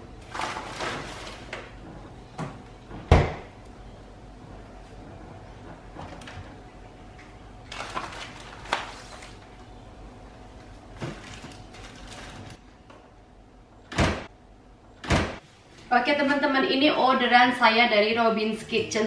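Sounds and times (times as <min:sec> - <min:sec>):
plastic packs rustling: 0:00.2 - 0:01.8, 0:07.6 - 0:09.6, 0:10.9 - 0:12.6
packs knocking on fridge shelves: 0:11.0 - 0:12.6.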